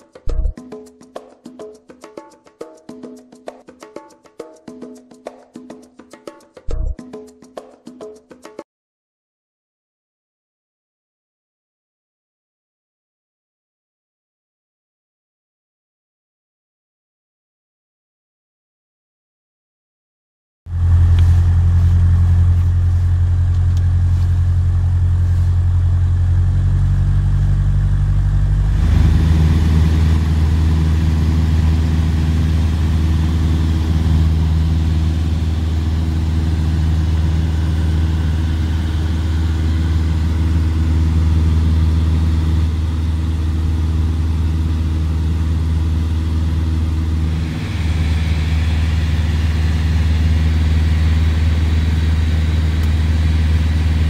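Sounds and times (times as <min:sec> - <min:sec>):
propeller aircraft engine droning: 0:20.7 - 0:54.0.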